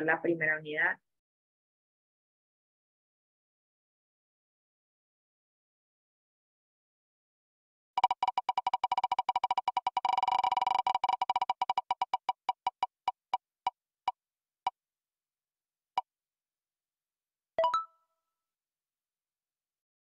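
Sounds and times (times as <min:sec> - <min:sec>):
prize wheel ticking: 0:08.0 - 0:13.4.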